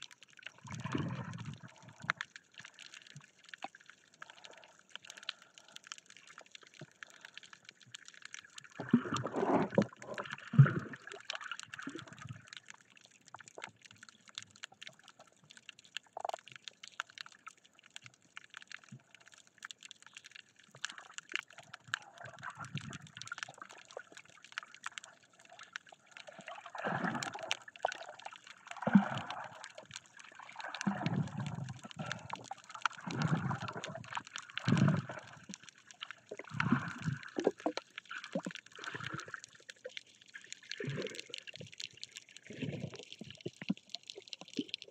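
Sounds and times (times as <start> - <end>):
muffled underwater sloshing: 8.8 - 12.3, 26.2 - 28.0, 28.8 - 44.9.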